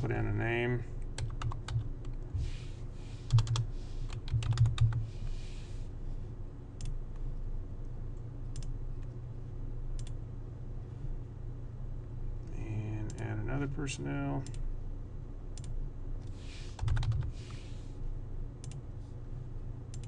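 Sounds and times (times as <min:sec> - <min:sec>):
computer keyboard typing: 0:01.2 - 0:01.9, 0:03.3 - 0:05.0, 0:16.8 - 0:17.3.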